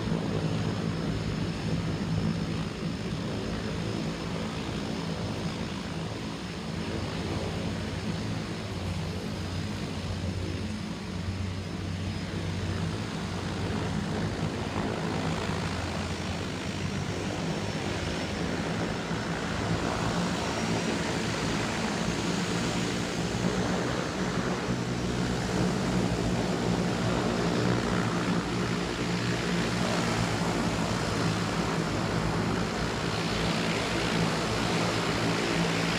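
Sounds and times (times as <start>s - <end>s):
propeller plane engine droning: 0.0s - 35.9s.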